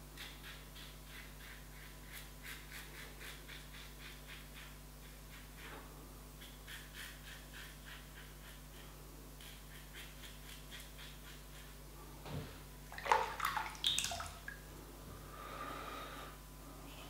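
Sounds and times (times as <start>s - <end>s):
razor scraping stubble: 6.4s - 11.8s
razor rinsed splashing and clinking: 12.9s - 14.6s
soft rush of water: 12.9s - 14.7s.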